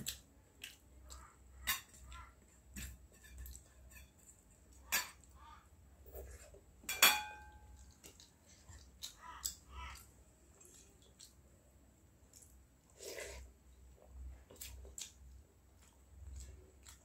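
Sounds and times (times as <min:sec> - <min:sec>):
soft chewing: 0:00.0 - 0:06.7, 0:07.5 - 0:17.0
metal dishes clinking: 0:04.9 - 0:05.3, 0:06.9 - 0:07.7.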